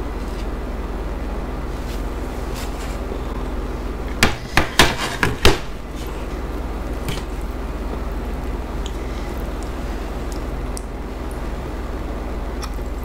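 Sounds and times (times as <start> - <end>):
steady low hum: 0.0 - 13.0
sharp knocks and crackles: 2.6 - 9.0.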